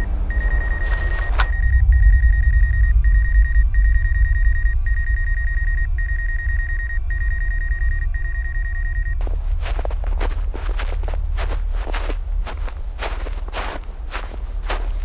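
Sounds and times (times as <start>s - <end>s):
high ringing tone: 0.0s - 11.5s
deep rumble: 0.0s - 15.0s
footsteps crunching in snow: 0.5s - 1.5s, 9.2s - 15.0s.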